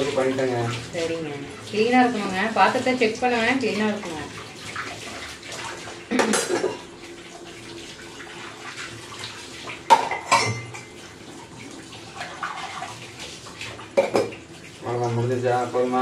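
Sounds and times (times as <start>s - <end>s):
tap water running into sink: 0.0s - 16.0s
metal utensils clinking: 9.9s - 10.9s.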